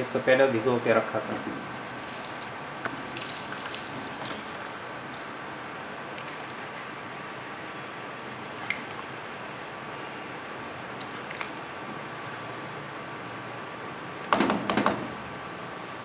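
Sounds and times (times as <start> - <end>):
water boiling in a pan: 0.1 - 14.2.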